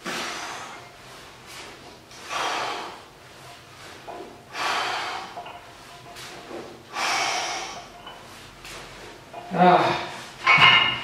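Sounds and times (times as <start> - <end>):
man breathing forcefully: 0.0 - 0.9, 2.2 - 3.2, 4.4 - 5.5, 6.9 - 8.0.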